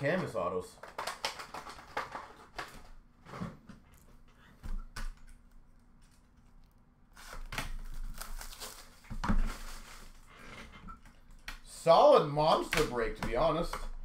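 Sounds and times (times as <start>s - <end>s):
plastic shrink wrap tearing: 7.1s - 10.3s.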